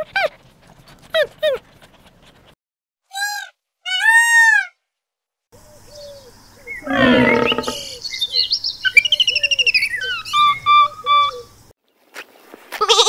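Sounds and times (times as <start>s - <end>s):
bird trill: 5.9s - 11.6s
peacock calling: 5.9s - 11.6s
harsh animal call: 6.8s - 8.0s.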